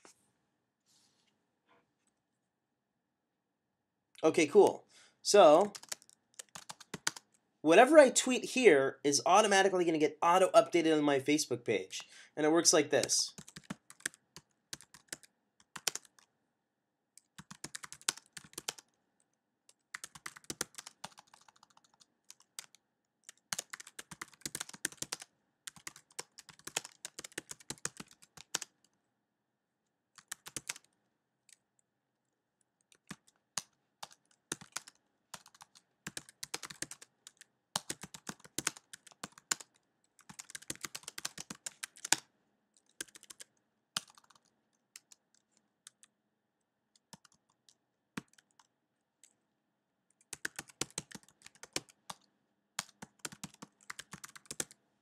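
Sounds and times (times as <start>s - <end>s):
computer keyboard typing: 5.6s - 7.3s, 13.3s - 16.3s, 17.2s - 18.9s, 19.7s - 28.8s, 30.2s - 30.9s, 32.9s - 42.2s, 42.8s - 46.1s, 47.0s - 49.4s, 50.2s - 54.8s.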